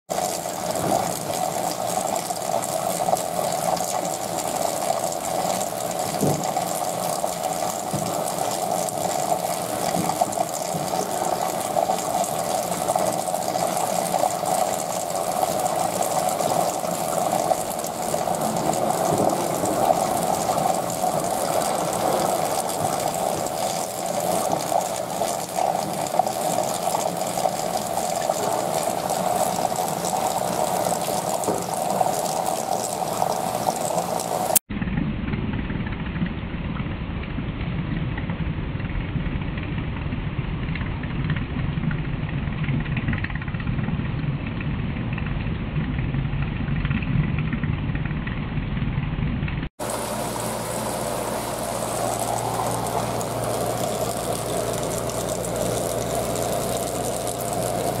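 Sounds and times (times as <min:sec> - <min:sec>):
running water rushing: 0:00.0 - 0:34.7, 0:49.8 - 0:58.0
pump hum: 0:00.1 - 0:34.6, 0:49.8 - 0:58.0.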